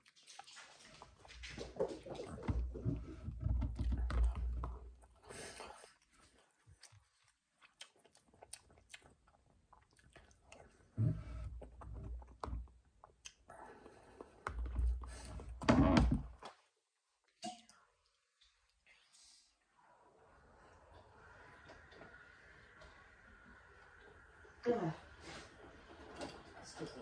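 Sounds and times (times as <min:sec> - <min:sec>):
person chewing food: 0:00.0 - 0:15.4.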